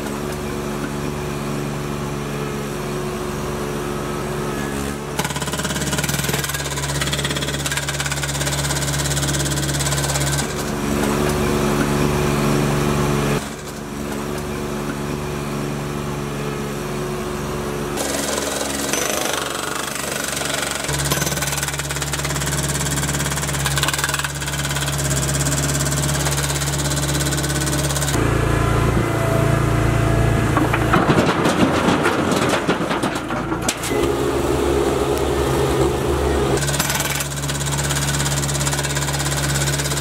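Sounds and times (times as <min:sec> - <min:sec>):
hydraulic hammer breaking concrete: 0:05.0 - 0:11.2, 0:18.0 - 0:28.2, 0:30.6 - 0:34.0, 0:36.6 - 0:40.0
machine engine running: 0:18.0 - 0:40.0.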